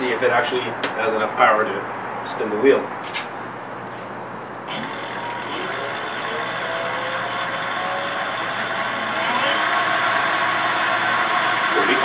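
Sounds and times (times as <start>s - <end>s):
electric motor whine: 4.7s - 12.0s.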